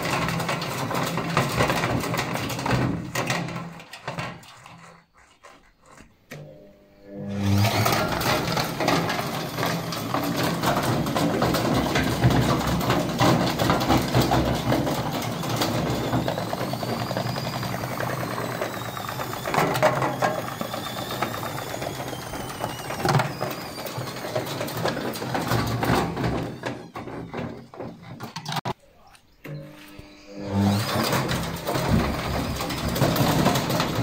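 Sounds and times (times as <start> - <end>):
washing machine spinning: 7.5 - 27.0.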